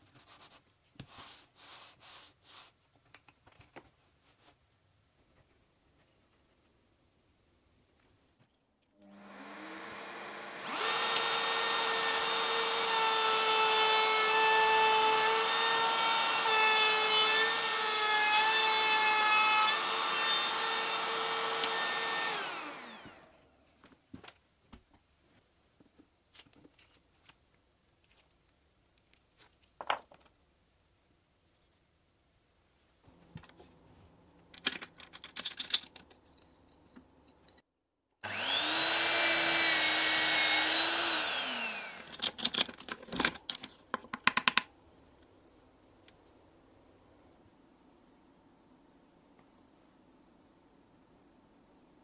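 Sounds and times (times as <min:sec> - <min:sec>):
trim router whining through plywood: 0:09.0 - 0:23.4, 0:38.2 - 0:42.2.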